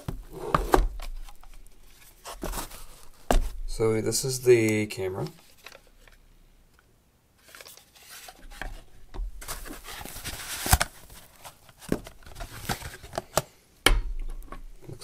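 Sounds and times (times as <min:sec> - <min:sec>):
cardboard rustling and scraping: 0:00.0 - 0:03.8, 0:07.4 - 0:13.4.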